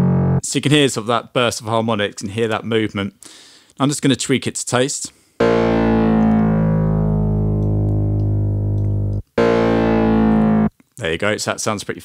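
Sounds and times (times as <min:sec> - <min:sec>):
distorted synth bass note: 0:00.0 - 0:00.4, 0:05.4 - 0:10.7.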